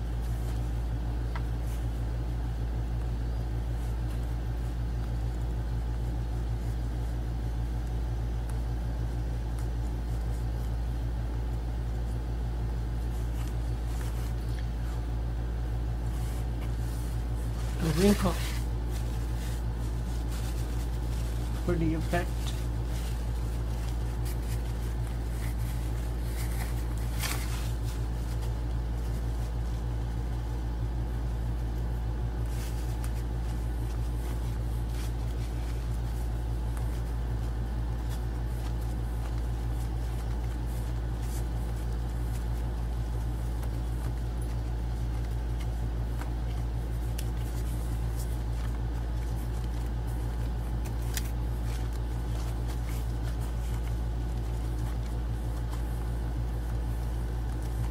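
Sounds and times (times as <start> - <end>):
low background hum: 0.0 - 57.9
paper towel rustles and taps: 0.1 - 2.3, 3.0 - 57.9.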